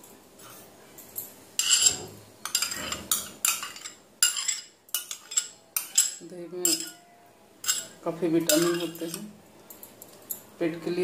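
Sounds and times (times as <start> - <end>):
metal spoon scraping a bowl: 1.6 - 9.3.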